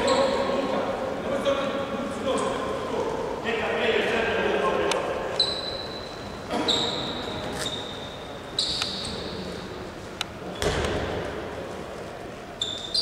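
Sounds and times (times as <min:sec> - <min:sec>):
shoe squeaks on floor: 0:00.0 - 0:00.5, 0:05.4 - 0:09.6, 0:12.6 - 0:13.0
ball bouncing: 0:10.6 - 0:11.3.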